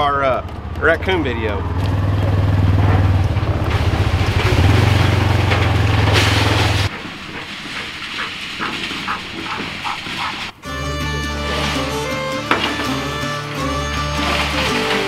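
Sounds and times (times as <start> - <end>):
off-road vehicle engine droning: 0.0 - 7.0, 8.6 - 15.0
rattling: 0.3 - 10.6.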